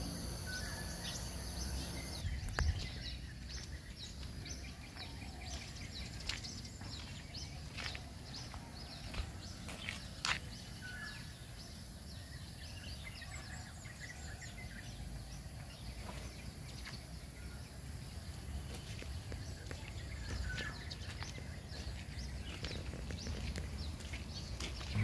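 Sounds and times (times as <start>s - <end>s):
steady low rumble: 0.0s - 5.0s, 19.2s - 25.0s
bird chirps: 0.0s - 25.0s.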